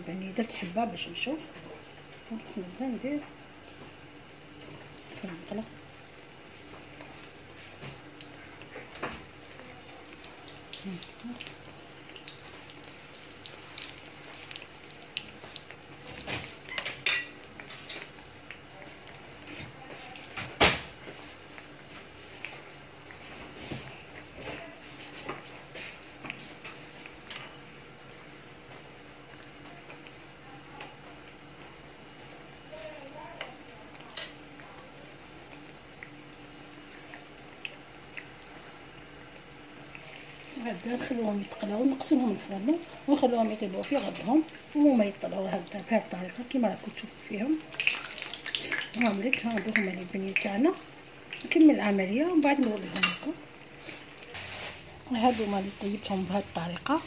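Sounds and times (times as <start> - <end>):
deep-frying in hot oil: 0.0 - 57.0
oil crackles: 4.6 - 27.2, 44.4 - 51.8, 52.4 - 57.0
utensil clinking on frying pan: 27.2 - 27.7, 34.1 - 34.5, 43.8 - 44.3.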